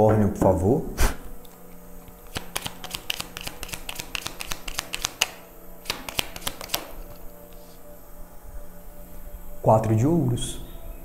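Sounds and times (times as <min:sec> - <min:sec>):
cards being shuffled: 0:01.5 - 0:07.8.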